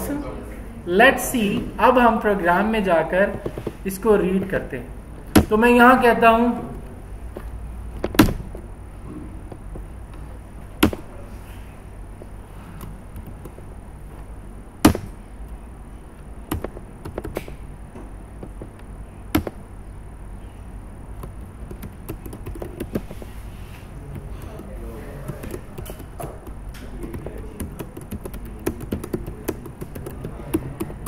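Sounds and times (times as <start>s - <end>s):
keyboard typing: 12.8s - 13.7s, 16.4s - 17.7s, 18.4s - 19.7s, 21.2s - 23.4s, 24.0s - 31.0s.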